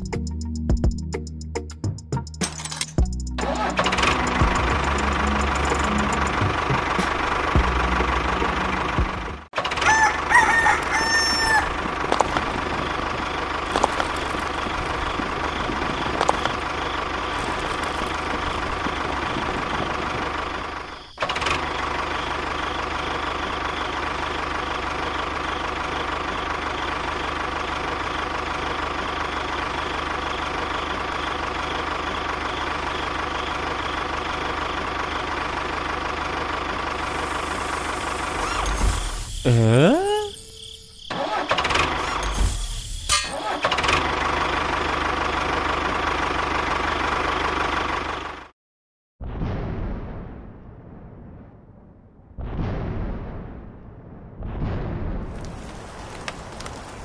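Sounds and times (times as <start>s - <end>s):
tractor engine running: 2.2s - 48.5s, 55.3s - 57.0s
rooster crowing: 9.7s - 12.5s.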